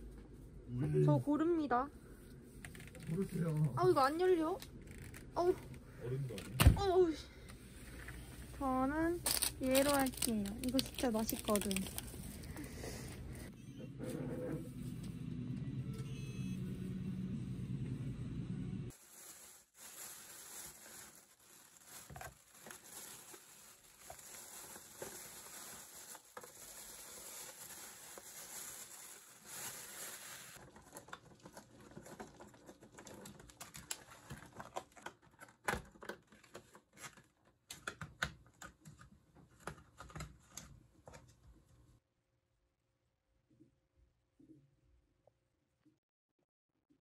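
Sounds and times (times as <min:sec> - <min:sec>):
plastic packaging crinkling: 0:09.2 - 0:12.7, 0:18.9 - 0:37.3.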